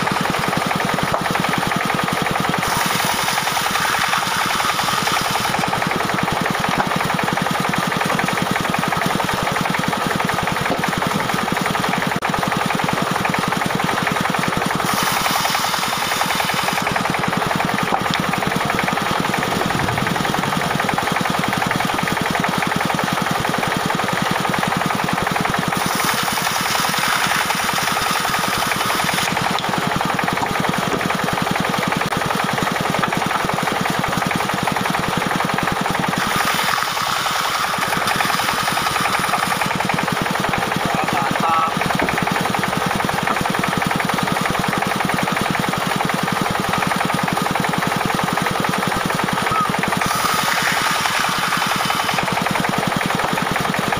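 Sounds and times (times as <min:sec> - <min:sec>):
sawmill engine knocking: 0:00.0 - 0:53.9
saw blade hissing through logs: 0:02.4 - 0:05.8, 0:14.6 - 0:17.1, 0:25.7 - 0:29.5, 0:36.0 - 0:39.9, 0:49.6 - 0:52.8.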